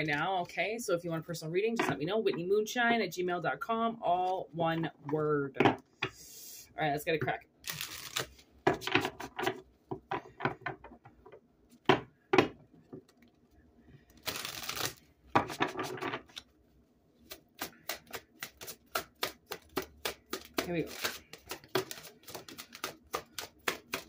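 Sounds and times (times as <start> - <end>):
cards shuffling: 7.6 - 9.6, 14.1 - 16.5, 17.2 - 24.0.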